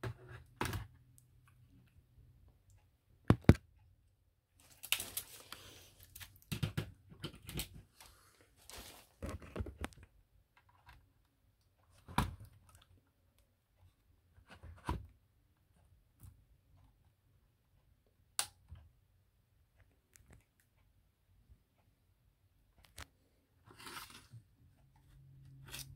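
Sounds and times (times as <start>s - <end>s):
plastic clicks and knocks: 3.2s - 3.7s, 6.4s - 7.8s
plastic bags crinkling: 4.6s - 6.5s, 8.6s - 9.5s.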